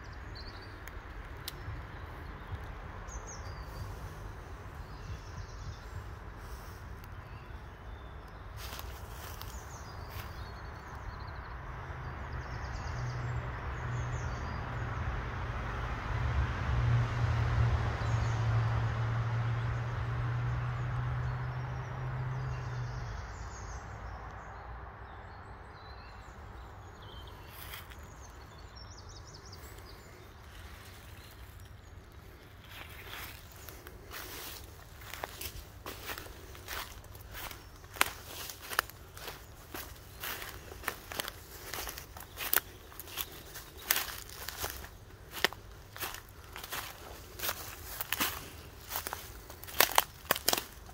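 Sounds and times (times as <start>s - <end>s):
birds chirping: 0.0s - 14.8s, 20.8s - 50.9s
rustles or footsteps: 8.6s - 10.4s, 29.6s - 50.9s
distant engine drone: 29.1s - 50.9s.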